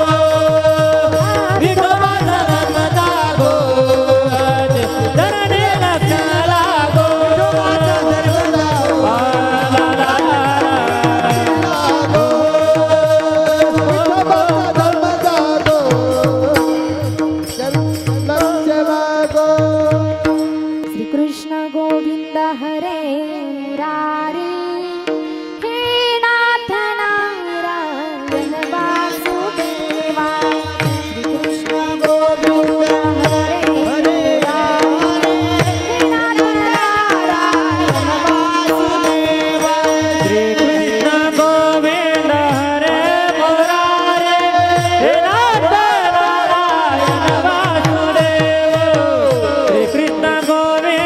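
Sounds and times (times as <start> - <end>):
drum beat: 0.0 - 18.5
woman singing devotional melody: 0.0 - 51.0.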